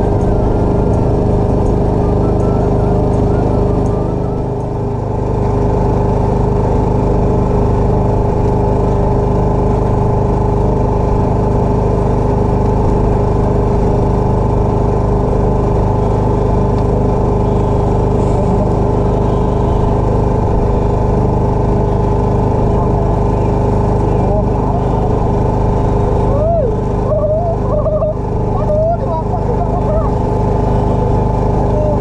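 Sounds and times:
boat engine droning: 0.0 - 32.0.

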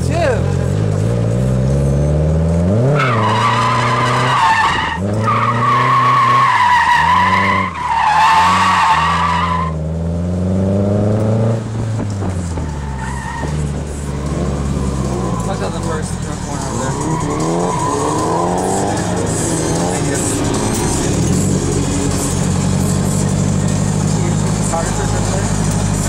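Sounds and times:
car engine revving: 0.0 - 26.0
tyres squealing: 2.8 - 9.8, 12.5 - 26.0.

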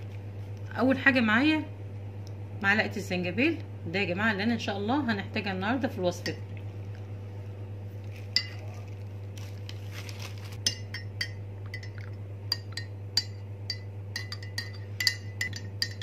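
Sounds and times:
metal spoon clinking glass mug: 10.7 - 16.0.

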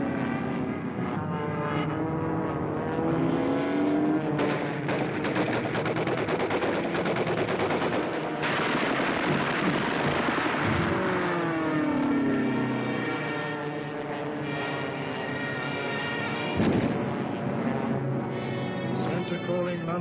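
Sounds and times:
plane diving past roar: 0.0 - 6.8, 7.4 - 20.0
aircraft engines droning: 0.0 - 20.0
rapid machine-gun fire: 4.4 - 11.1.

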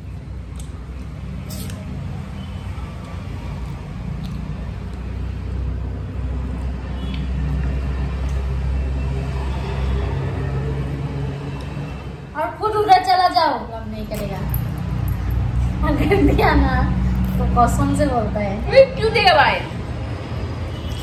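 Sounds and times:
low engine rumble: 0.0 - 20.8.

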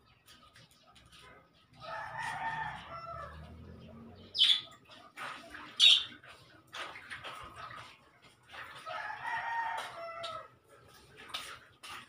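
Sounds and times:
rooster crowing: 1.8 - 3.6, 8.9 - 10.5
high-pitched bird calls: 4.2 - 6.3.

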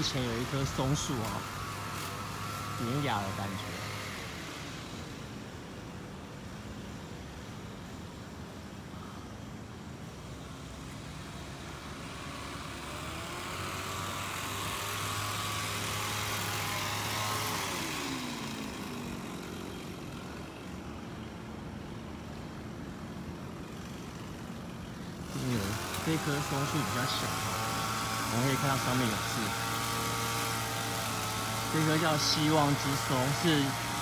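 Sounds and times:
motor vehicle passing by: 10.3 - 34.0.

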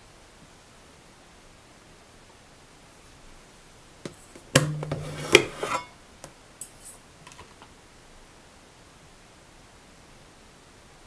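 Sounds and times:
plastic and metal clattering: 4.1 - 5.9.

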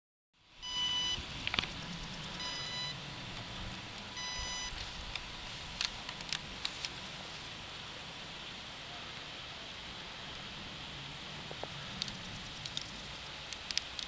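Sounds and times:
short electronic beeps: 0.6 - 1.2, 2.4 - 3.0, 4.2 - 4.8
sharp clicks: 12.0 - 14.0.

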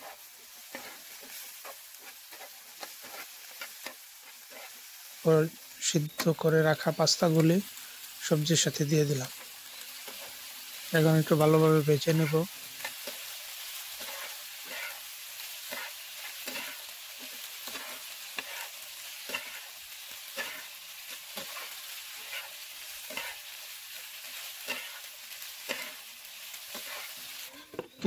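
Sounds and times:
spatula scraping frying pan: 0.0 - 4.9, 12.0 - 23.6, 24.2 - 26.1, 26.7 - 28.0
food sizzling: 0.0 - 28.0.

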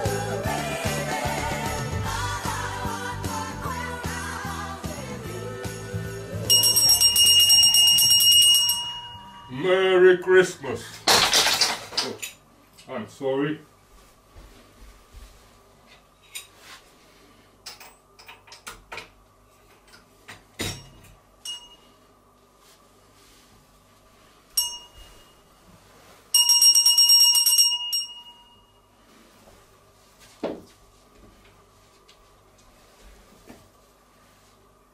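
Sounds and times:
bell ringing: 6.5 - 9.8, 21.4 - 21.9, 24.6 - 25.4, 26.3 - 28.9
rustling of someone moving: 13.7 - 17.5, 22.3 - 26.5, 28.8 - 34.9.

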